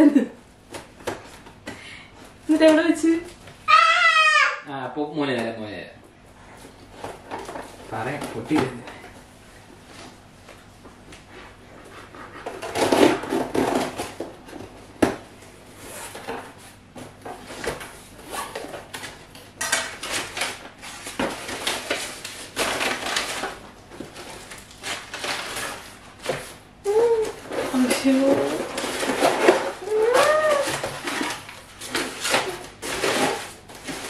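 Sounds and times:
packing paper crinkling: 20.0 - 34.0
cardboard flaps scraping: 20.3 - 34.0.

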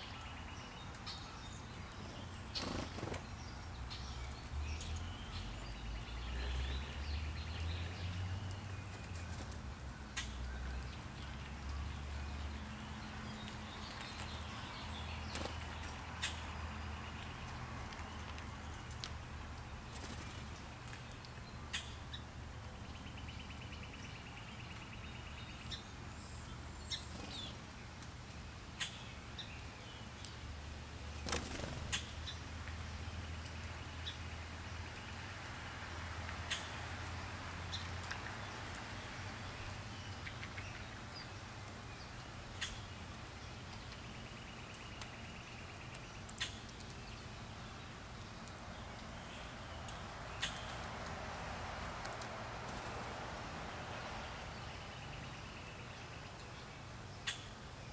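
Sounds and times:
birds chirping: 0.0 - 28.0, 28.6 - 57.9.

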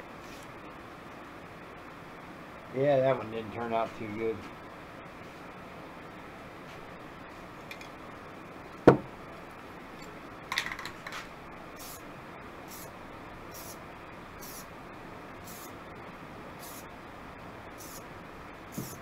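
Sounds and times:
spray can hissing bursts: 11.8 - 12.0, 12.7 - 12.9, 13.5 - 13.8, 14.4 - 14.7, 15.4 - 15.7, 16.6 - 16.9, 17.8 - 18.0, 18.7 - 19.0.

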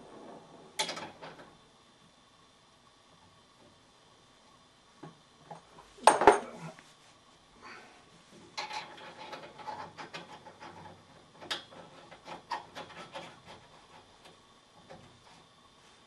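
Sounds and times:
metal fittings scraping: 8.6 - 14.3.

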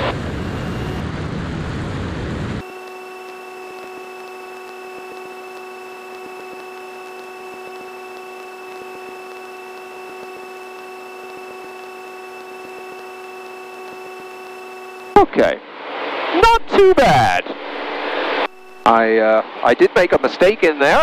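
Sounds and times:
airplane engines droning: 0.0 - 16.4.

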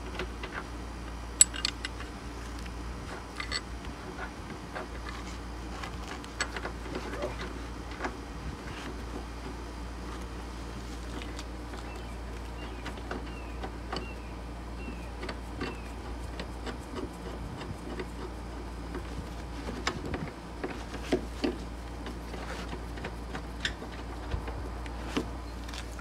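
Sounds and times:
steady low hum: 0.0 - 26.0
hand tools and bolts clicking: 1.4 - 2.1, 3.3 - 3.7.

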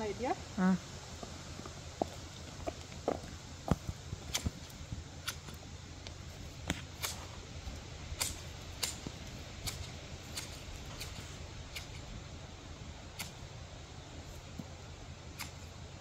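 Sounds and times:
low background rumble: 0.0 - 16.0
garden shears snipping: 4.2 - 7.5, 8.1 - 12.1, 13.1 - 13.5, 15.3 - 15.7.

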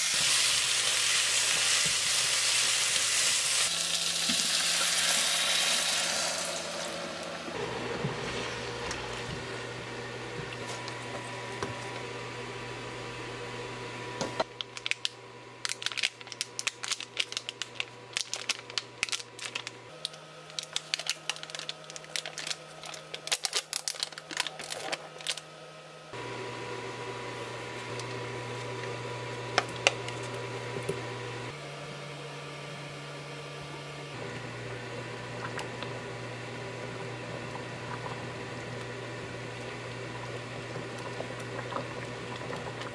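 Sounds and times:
plastic packet crinkling: 14.6 - 25.5.

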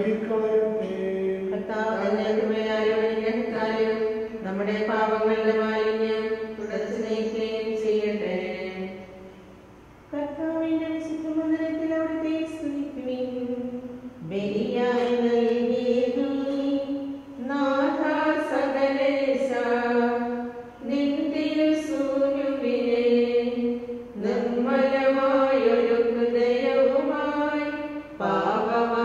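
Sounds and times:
person singing liturgical chant: 10.2 - 29.0.

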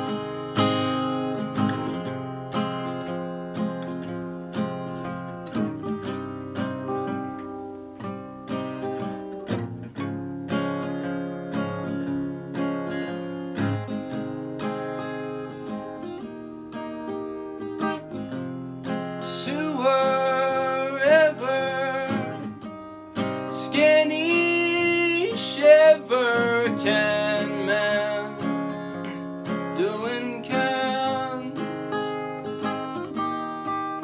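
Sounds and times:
acoustic guitar: 0.0 - 34.0.

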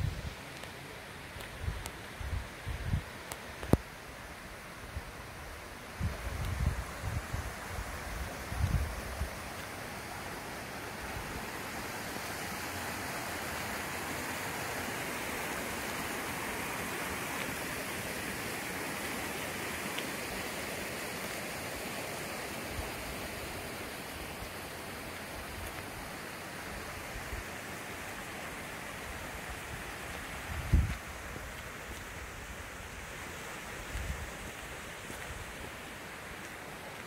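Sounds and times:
stream running over rocks: 0.0 - 37.0.

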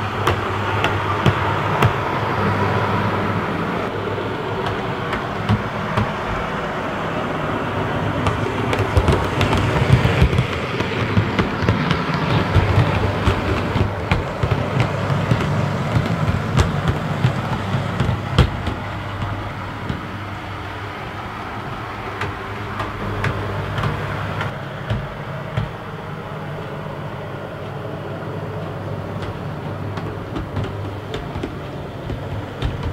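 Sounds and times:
wheels clicking over rail joints: 0.0 - 32.9.

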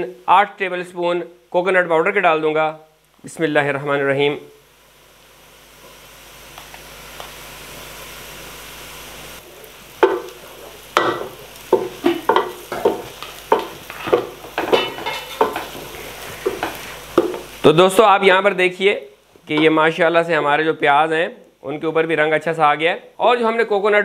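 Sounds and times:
hot oil sizzling: 0.0 - 24.0
wooden spoon scraping pot: 11.7 - 17.4.

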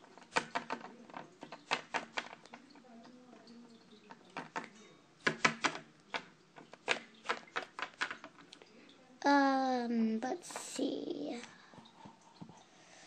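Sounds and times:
plastic figurines tapping on floor: 0.2 - 3.2, 4.1 - 8.5.

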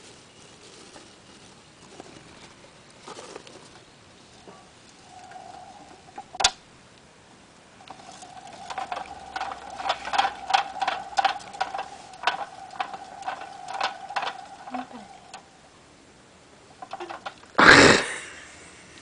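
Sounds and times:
hamster wheel whirring squeak: 7.8 - 15.6.

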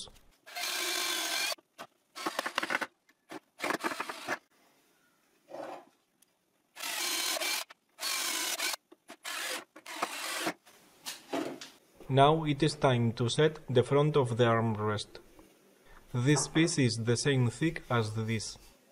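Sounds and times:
cordless drill driving into wood: 3.6 - 4.4, 6.8 - 10.6.

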